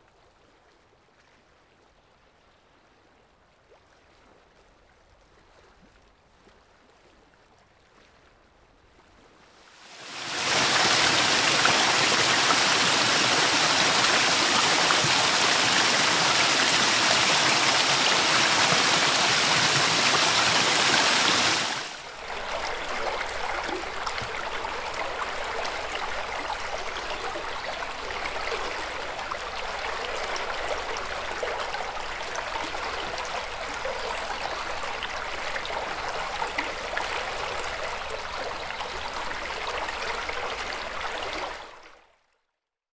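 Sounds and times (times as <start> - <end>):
creek flowing: 9.7 - 41.9
water falling into pool: 9.9 - 22.0.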